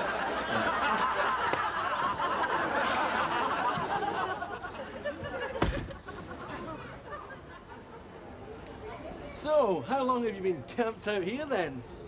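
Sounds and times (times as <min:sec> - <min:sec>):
audience laughing: 0:00.2 - 0:08.0.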